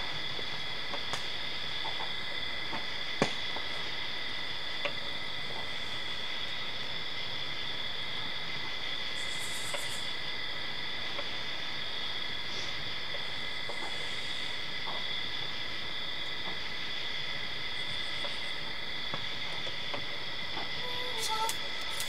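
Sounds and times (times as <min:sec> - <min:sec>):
crickets and insects chirping: 0:00.0 - 0:22.0.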